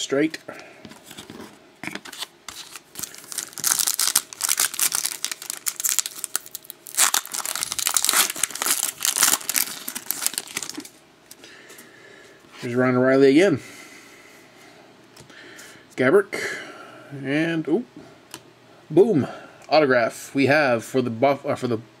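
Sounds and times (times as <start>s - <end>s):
foil wrapper crinkling and tearing: 1.8s - 11.0s.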